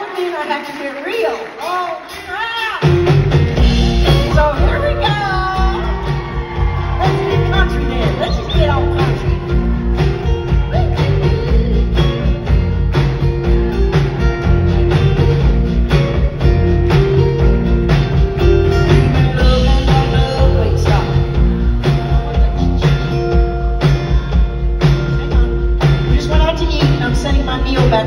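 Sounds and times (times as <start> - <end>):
drum kit beat: 0.0 - 28.0
live band playing: 0.0 - 28.0.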